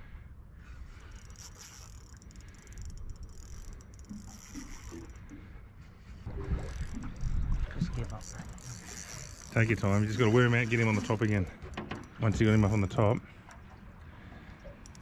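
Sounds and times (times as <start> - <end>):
spinning reel clicking rapidly: 8.2 - 9.5.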